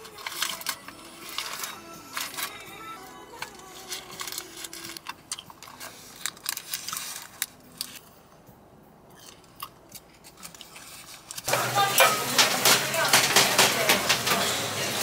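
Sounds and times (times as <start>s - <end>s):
paper liner crinkling: 3.3s - 8.0s.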